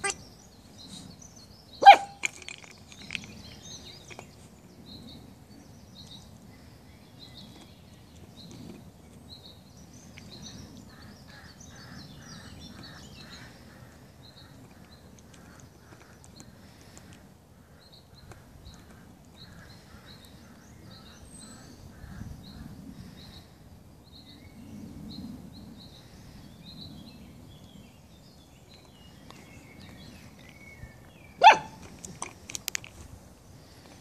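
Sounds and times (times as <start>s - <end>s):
puppy yip: 1.8s - 2.2s, 31.4s - 31.8s.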